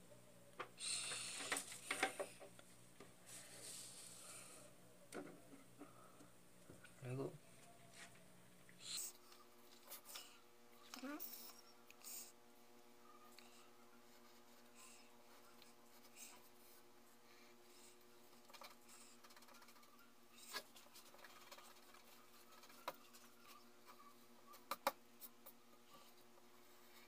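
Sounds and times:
low steady hum: 0.0s - 27.0s
pencil scratching on paper: 18.4s - 24.1s.

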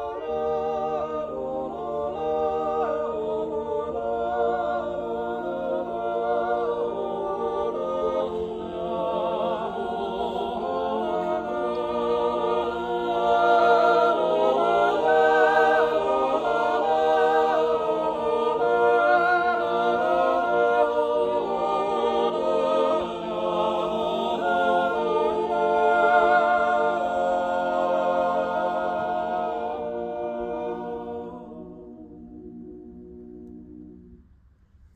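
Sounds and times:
male chorus yodeling a cappella: 0.0s - 32.0s.

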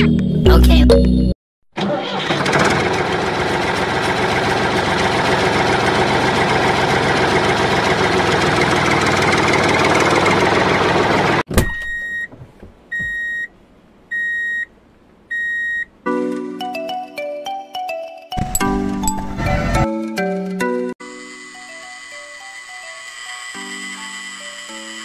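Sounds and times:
music: 0.0s - 1.4s, 16.1s - 22.0s
engine running: 1.8s - 11.5s.

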